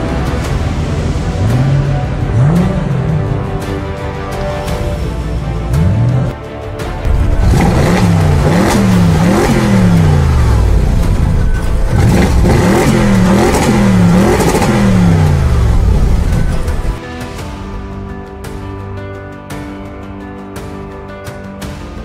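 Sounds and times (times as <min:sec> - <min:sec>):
car engine revving: 0:00.0 - 0:06.4, 0:07.0 - 0:17.0.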